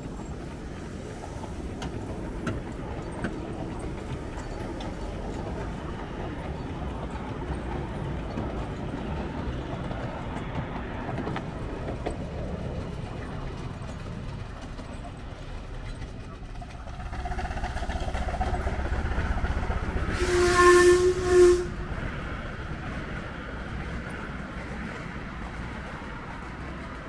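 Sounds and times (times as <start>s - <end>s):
train wheels rumbling on rail: 0.0s - 27.0s.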